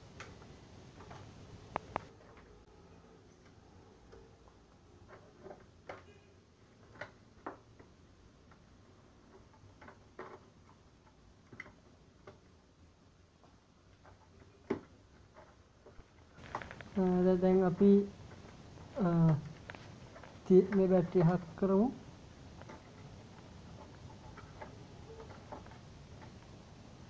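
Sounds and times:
clicks and taps on plastic: 6.8 - 8.6, 13.4 - 17.0.

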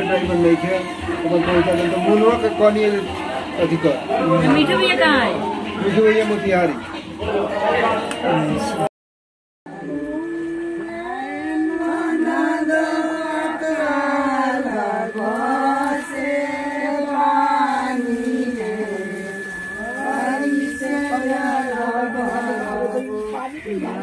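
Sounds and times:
women singing chant-like song: 9.7 - 24.0.

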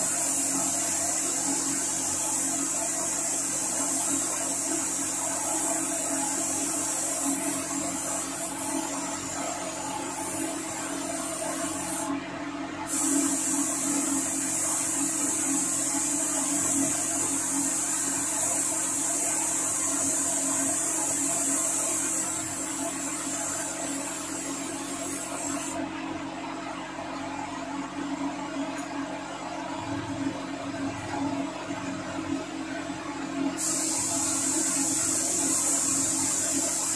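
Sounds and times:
paint spray gun hissing: 0.0 - 12.1, 12.8 - 25.8, 33.6 - 36.9.

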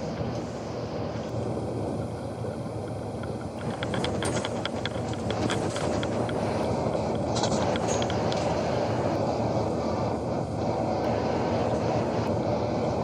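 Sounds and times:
bus engine and road noise: 0.0 - 13.0
light clicks and rattles: 3.2 - 8.5.

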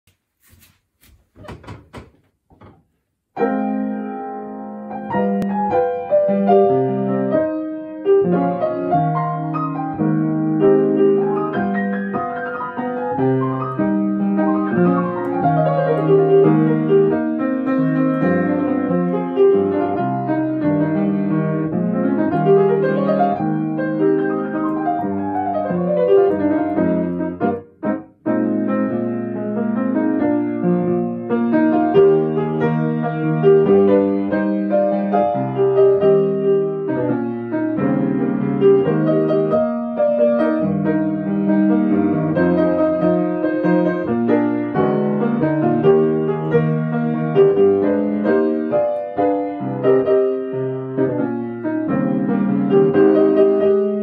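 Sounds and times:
soft knocks: 1.0 - 3.0
grand piano playing: 3.4 - 54.0.

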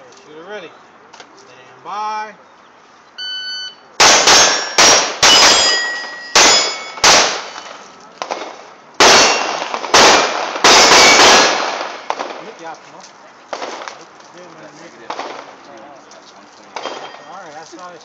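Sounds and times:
rapid pistol shots: 4.0 - 5.8, 6.4 - 12.5
steel targets ringing: 4.0 - 7.8, 9.0 - 9.6.

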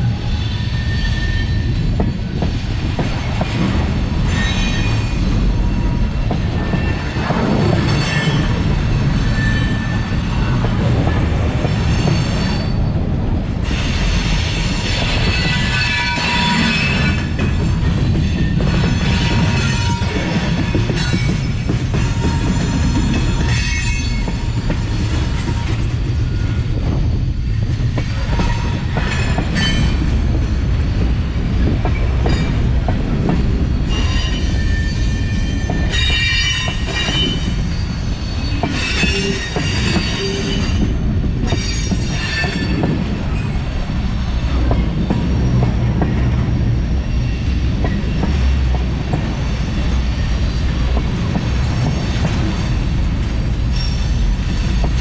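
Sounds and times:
clicks and clanks of rail cars: 0.0 - 55.0
train wheels rumbling on rail: 0.0 - 55.0
high-pitched wheel squeal: 0.6 - 1.8.

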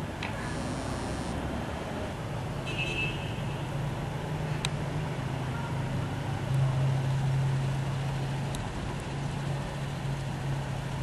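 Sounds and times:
vehicle engine hum: 0.0 - 2.6, 3.4 - 11.0.

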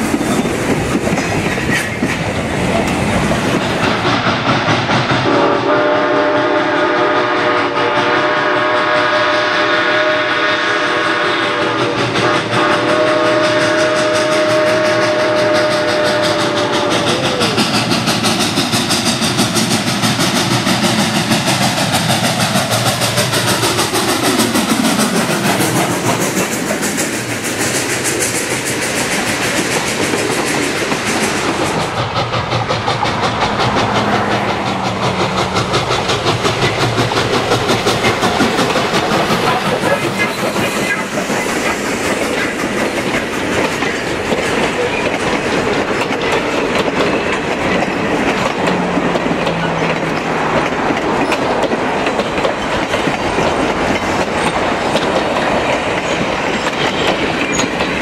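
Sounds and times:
train wheels clattering: 0.0 - 58.0
steam train whistle: 5.2 - 17.9.

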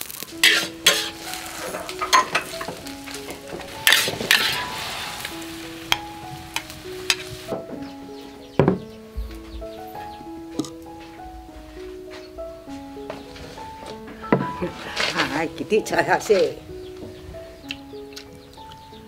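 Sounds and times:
greens sizzling in wok: 0.0 - 8.3
metal spatula scraping wok: 0.3 - 7.4, 13.4 - 16.6.

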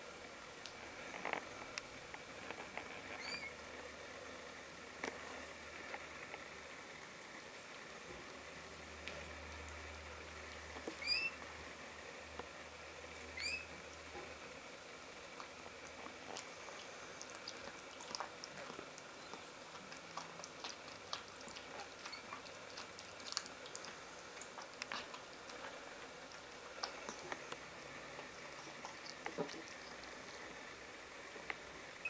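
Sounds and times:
kitten squeaking: 3.2 - 3.5, 11.0 - 11.4, 13.4 - 13.7
cat licking kitten: 15.3 - 30.8.

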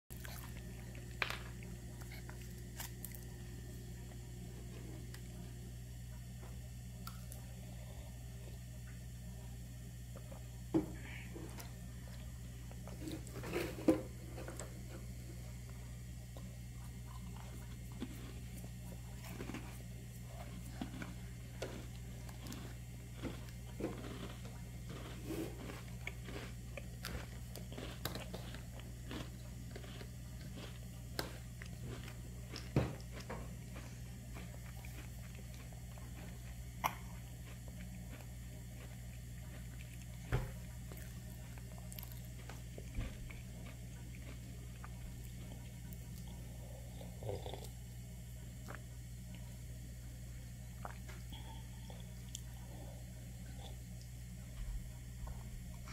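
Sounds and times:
low steady hum: 0.1 - 55.9.

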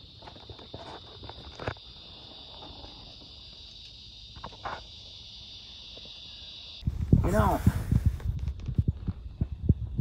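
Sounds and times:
insects chirping: 0.0 - 10.0.

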